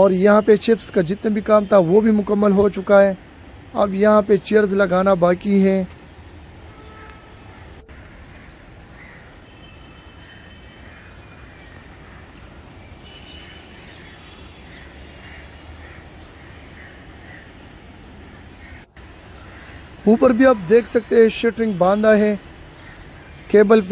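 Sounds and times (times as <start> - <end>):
steady background hiss: 17.7 - 23.9.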